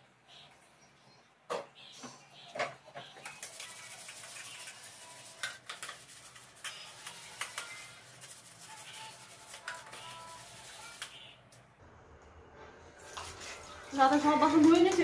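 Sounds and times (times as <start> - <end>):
tap water hiss: 13.0 - 15.0.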